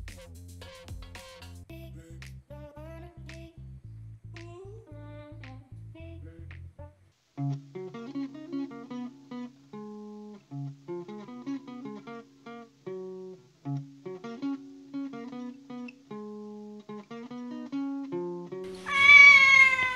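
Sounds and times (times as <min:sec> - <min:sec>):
plucked acoustic guitar melody: 0:07.4 - 0:19.3.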